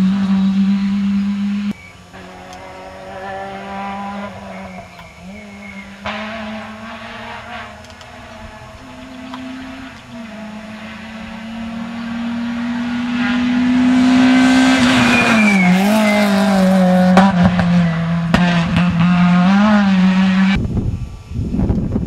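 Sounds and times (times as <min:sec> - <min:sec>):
rally car engine passing: 0:00.0 - 0:20.6
high squeal: 0:14.7 - 0:16.6.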